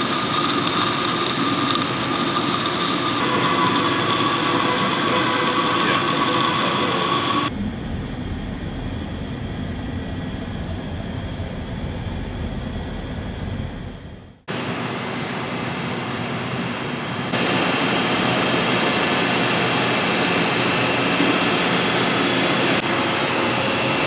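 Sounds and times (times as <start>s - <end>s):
laboratory vacuum humming and hissing: 0.0s - 7.5s, 14.5s - 24.0s.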